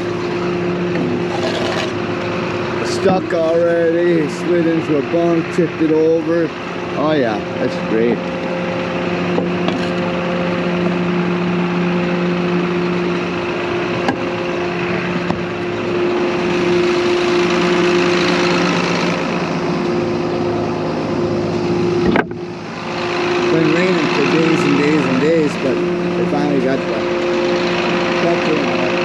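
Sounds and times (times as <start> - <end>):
tractor engine idling: 0.0 - 29.0.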